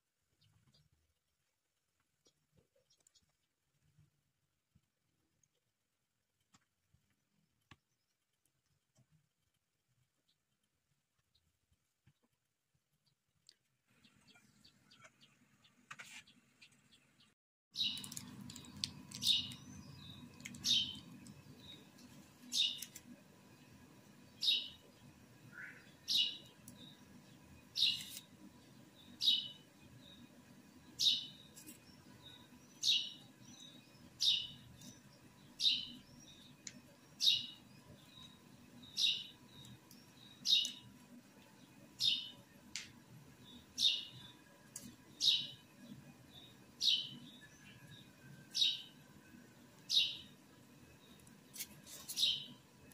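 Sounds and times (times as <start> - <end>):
bird chirping: 13.9 - 23.0, 23.6 - 42.5, 43.4 - 44.5, 45.1 - 52.6.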